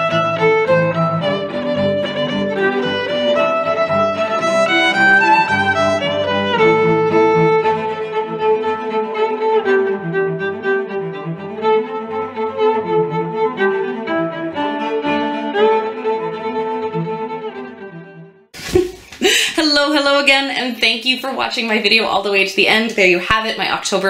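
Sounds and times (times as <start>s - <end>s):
instrumental background music: 0.0s - 18.5s.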